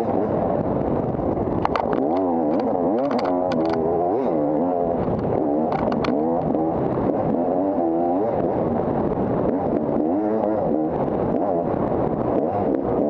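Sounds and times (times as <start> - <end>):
dirt bike engine revving: 1.7 - 13.0.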